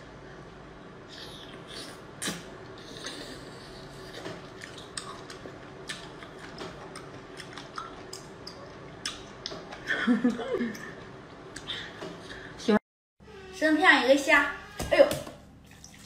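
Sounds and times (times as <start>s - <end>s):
clicks and smacks of eating: 4.1s - 11.8s.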